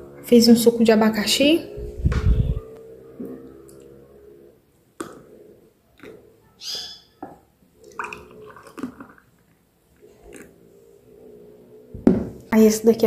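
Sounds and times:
juice pouring into glasses: 0:07.8 - 0:09.5.

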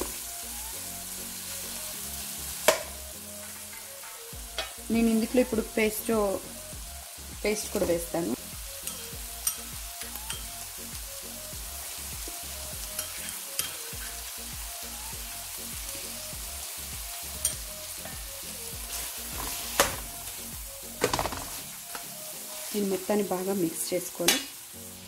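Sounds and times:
vegetables sizzling in a pan: 0:00.0 - 0:25.0
metal spatula scraping a pan: 0:03.3 - 0:04.8, 0:12.8 - 0:14.3, 0:18.9 - 0:20.0.

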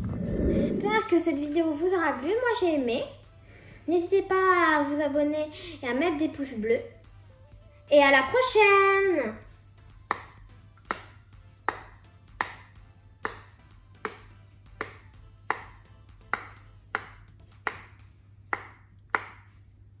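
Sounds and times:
fidget toy bubbles popping: 0:10.1 - 0:19.6.

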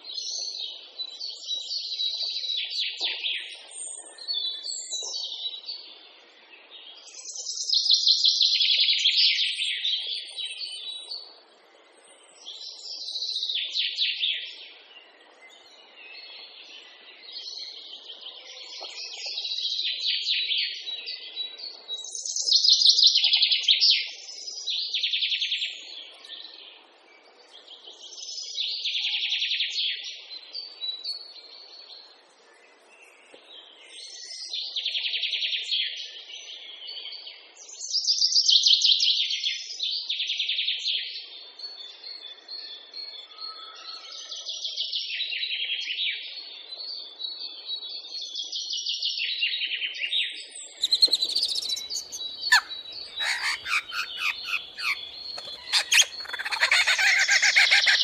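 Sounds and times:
songbird singing trills: 0:50.3 - 0:58.0.

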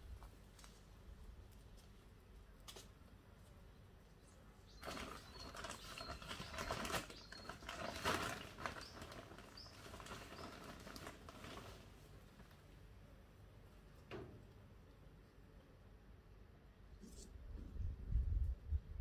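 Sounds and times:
plastic bag rustling: 0:04.8 - 0:12.5.

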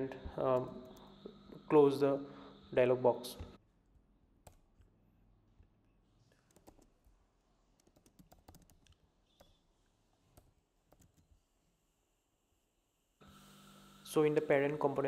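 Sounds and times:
faint keyboard typing: 0:06.3 - 0:07.2, 0:07.8 - 0:09.6, 0:10.2 - 0:11.4.

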